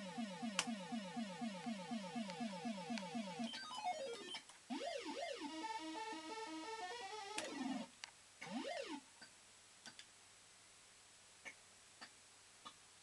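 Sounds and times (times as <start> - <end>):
fruit machine electronic sound effects: 0.0 - 9.0.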